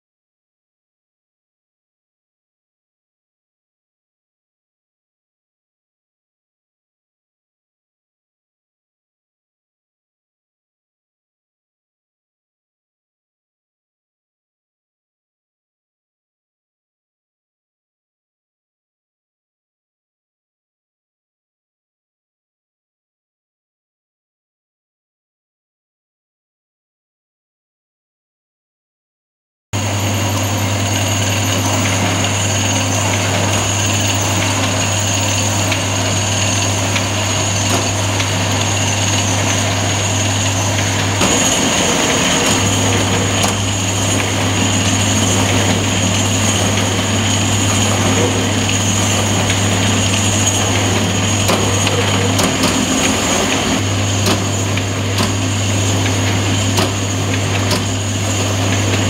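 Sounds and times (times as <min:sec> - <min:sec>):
machine hum and whine: 0:29.8 - 0:59.0.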